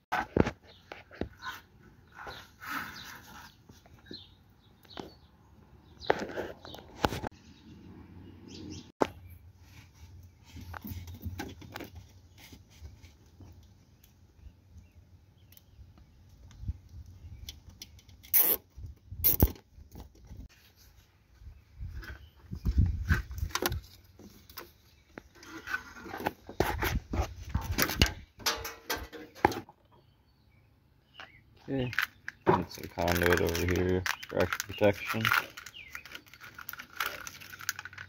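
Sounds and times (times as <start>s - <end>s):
cable in plastic conduit rustling: 21.8s - 29.7s, 31.7s - 38.0s.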